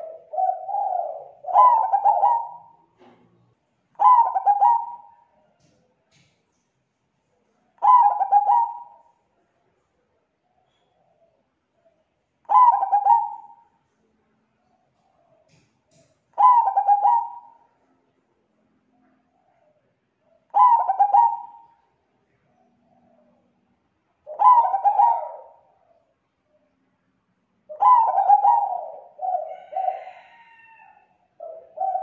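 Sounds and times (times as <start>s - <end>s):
dove cooing: 0.0s - 3.2s, 3.9s - 5.8s, 7.7s - 9.2s, 10.5s - 13.8s, 14.7s - 17.8s, 18.9s - 26.7s, 27.7s - 32.0s.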